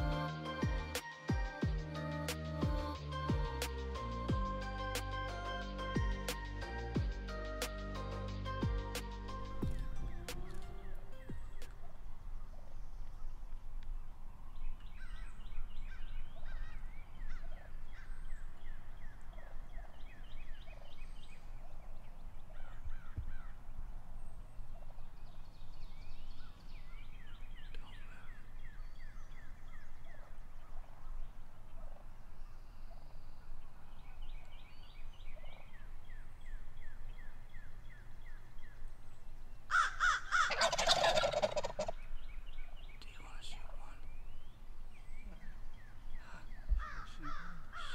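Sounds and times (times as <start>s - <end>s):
turkeys gobbling: 39.7s - 42.1s.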